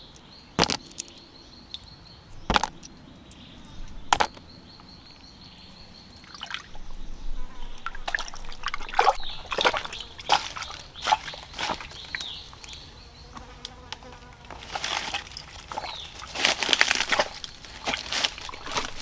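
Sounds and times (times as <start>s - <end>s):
boots splashing through stream: 7.8s - 12.3s, 14.8s - 19.0s
footsteps on rocks and dry leaves: 8.1s - 12.7s, 14.4s - 19.0s
faint insect buzz: 9.2s - 14.7s.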